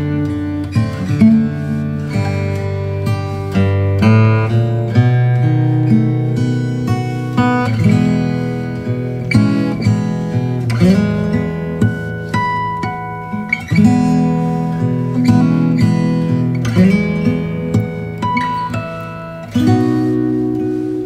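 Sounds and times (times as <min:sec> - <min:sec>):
acoustic guitar playing: 0:00.0 - 0:21.0.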